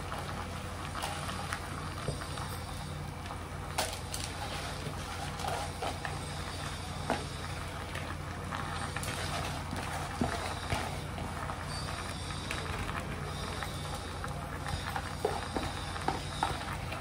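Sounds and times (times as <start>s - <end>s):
steady low hum: 0.0s - 17.0s
clinks and scrapes against pot: 3.7s - 7.4s.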